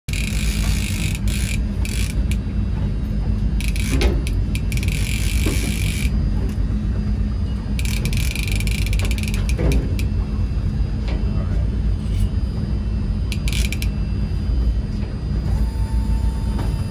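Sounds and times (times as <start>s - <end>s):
fishing reel rasping whir: 0.1s - 2.4s, 3.6s - 6.2s, 7.8s - 10.1s, 13.3s - 14.1s.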